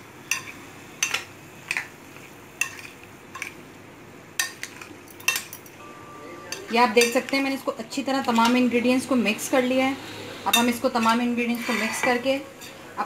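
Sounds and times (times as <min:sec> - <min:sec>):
spoon stirring salad: 0:00.3 - 0:03.6, 0:04.4 - 0:05.7.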